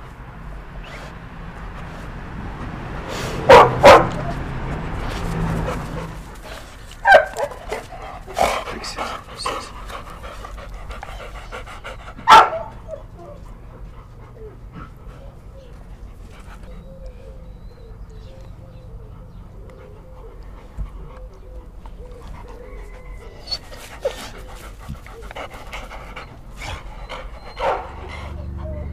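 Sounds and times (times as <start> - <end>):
dog panting: 3.1 - 28.9
dog barking: 3.5 - 4.4, 7.0 - 7.6, 12.2 - 12.8, 27.6 - 28.0.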